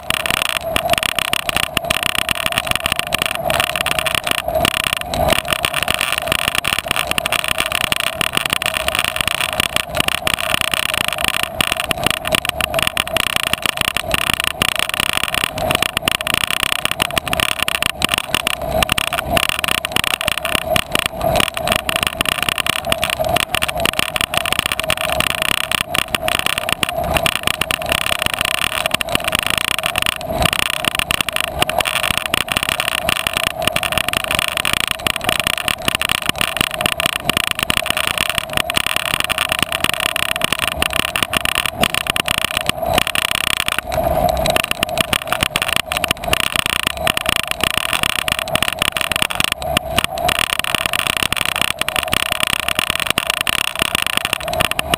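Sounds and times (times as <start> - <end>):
bicycle tyre and wind rumble: 0.0 - 54.9
bike rattling on bumpy ground: 0.0 - 54.9.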